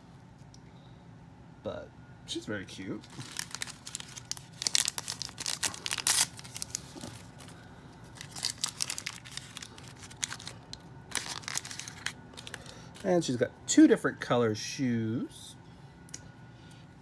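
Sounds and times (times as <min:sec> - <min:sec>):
plastic packaging crinkling and tearing: 0:03.0 - 0:13.2.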